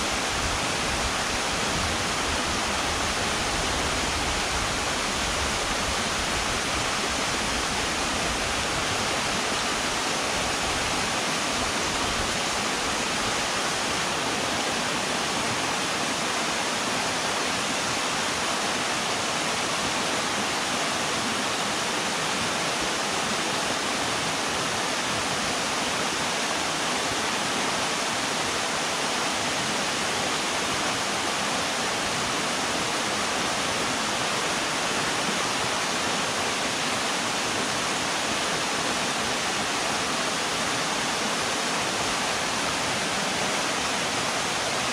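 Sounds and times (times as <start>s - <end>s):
river water rushing: 0.0s - 44.9s.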